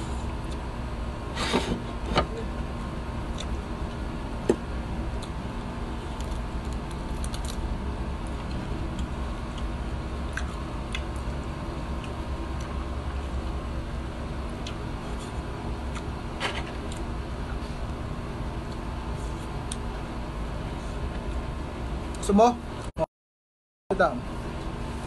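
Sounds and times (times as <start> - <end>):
low hum: 0.0 - 22.9
chewing clicks and smacks: 10.3 - 11.4.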